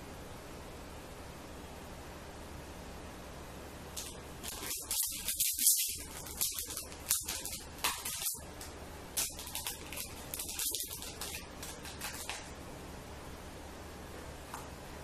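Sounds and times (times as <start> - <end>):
ribbon cord rustling: 4.0 - 12.5.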